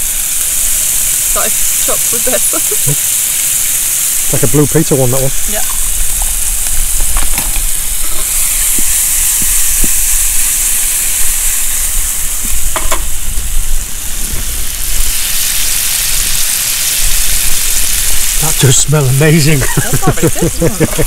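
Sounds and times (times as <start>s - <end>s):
food sizzling in a frying pan: 0.0s - 21.0s
pan and utensil knocks: 12.7s - 13.1s.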